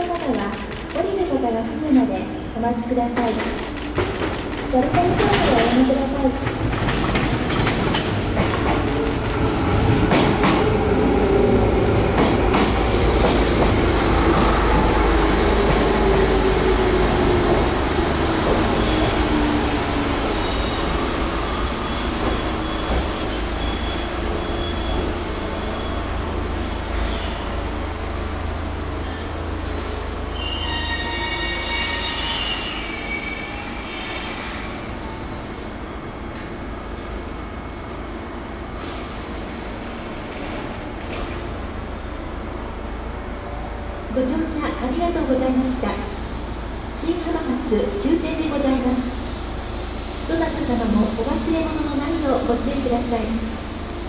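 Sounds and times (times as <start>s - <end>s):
train motor whine and rumble: 2.9s - 30.8s
train wheel squeal: 14.2s - 34.8s.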